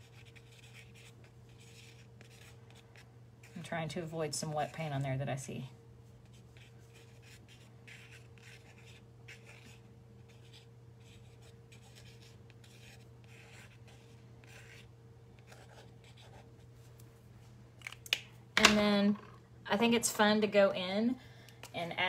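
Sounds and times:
steady low hum: 0:00.0 - 0:22.0
pen scratching on paper: 0:00.1 - 0:03.0, 0:06.3 - 0:16.5.

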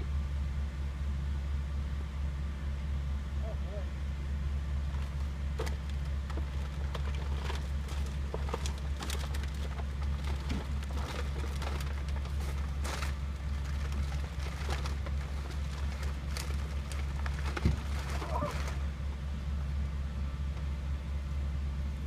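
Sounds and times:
steady low hum: 0:00.0 - 0:22.0
plastic bags rustling: 0:04.9 - 0:18.9.

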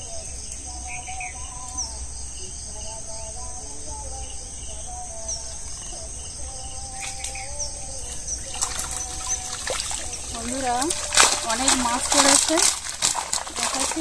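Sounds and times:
insects shrilling: 0:00.0 - 0:14.0
bird chirps: 0:04.1 - 0:12.9
water splashing: 0:08.0 - 0:14.0.

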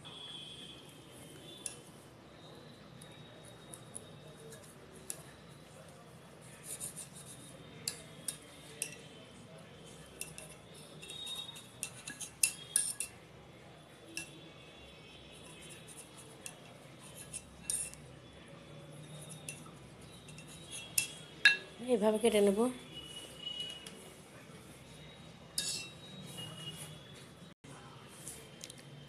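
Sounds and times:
knife scraping and tapping on stone: 0:06.8 - 0:09.1, 0:10.2 - 0:13.2, 0:15.4 - 0:18.1, 0:19.1 - 0:21.7.

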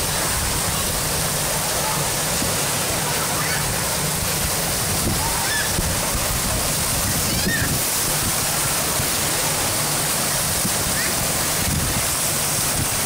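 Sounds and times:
water rushing in wave pool: 0:00.0 - 0:13.0
distant shouts: 0:05.1 - 0:05.8.

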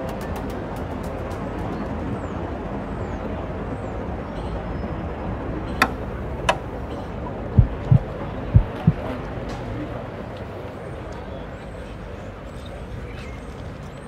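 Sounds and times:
urban background noise: 0:00.0 - 0:14.0.

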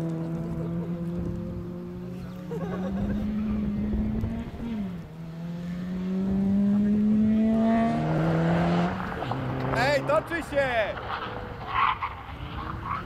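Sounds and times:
car engine accelerating hard: 0:00.0 - 0:10.3.

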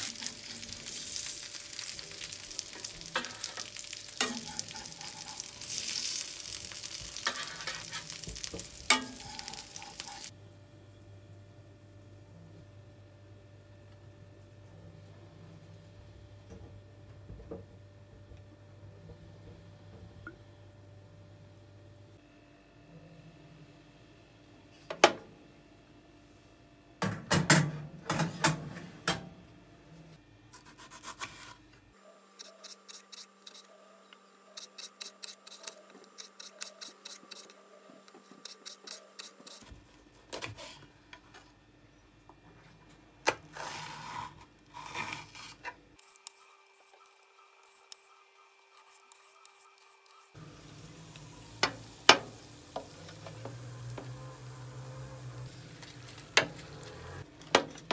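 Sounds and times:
metal tray and utensils clanking: 0:02.7 - 0:06.2, 0:06.8 - 0:10.3.

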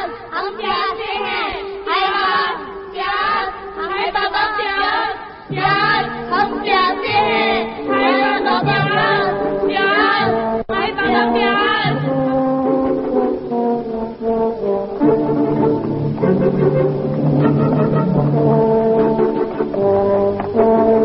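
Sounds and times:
sustained low instrumental notes: 0:05.5 - 0:21.0.

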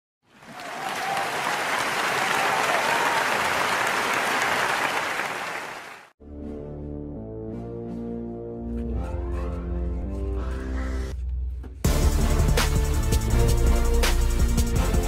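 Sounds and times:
crowd applauding: 0:00.3 - 0:06.2
music: 0:06.2 - 0:15.0.

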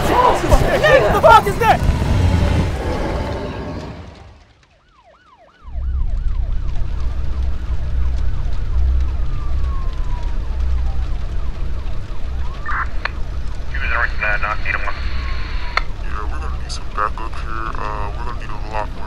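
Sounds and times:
flames blasting: 0:00.0 - 0:05.0, 0:05.6 - 0:19.0
fire engine sirens: 0:00.0 - 0:19.0
low rumble: 0:00.4 - 0:04.7, 0:05.6 - 0:18.9.

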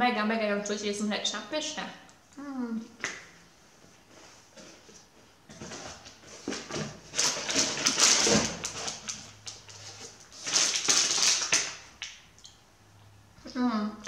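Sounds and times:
plastic wrappers crinkling: 0:05.6 - 0:11.9.

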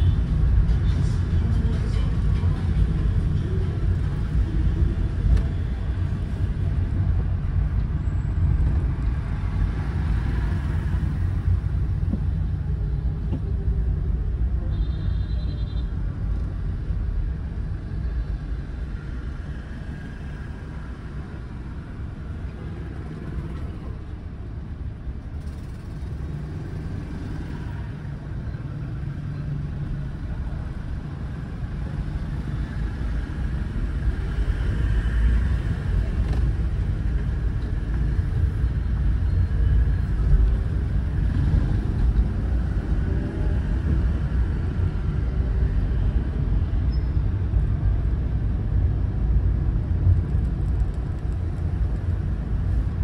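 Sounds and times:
car driving rumble: 0:00.0 - 0:14.9.

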